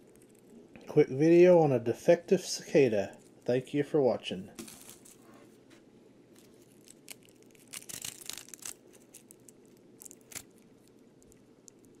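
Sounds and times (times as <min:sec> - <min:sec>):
scratchy crackles and clicks: 0:00.0 - 0:00.9, 0:04.5 - 0:12.0.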